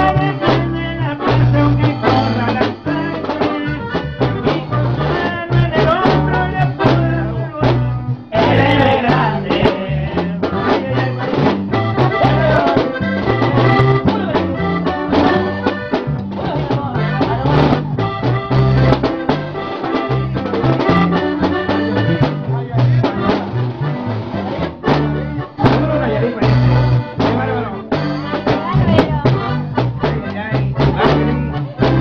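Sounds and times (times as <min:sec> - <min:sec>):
upbeat latin music: 0:00.0 - 0:32.0.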